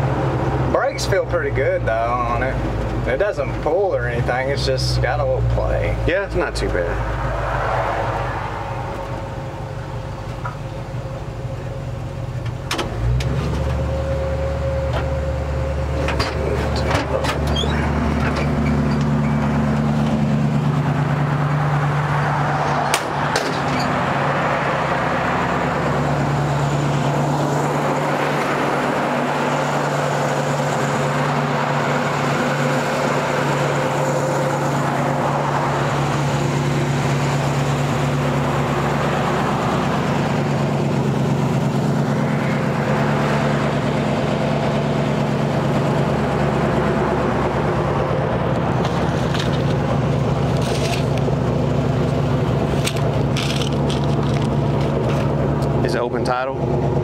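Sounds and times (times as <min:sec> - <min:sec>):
vehicle engine running: 0:00.0 - 0:57.0
sharp clicks and knocks: 0:22.7 - 0:24.0.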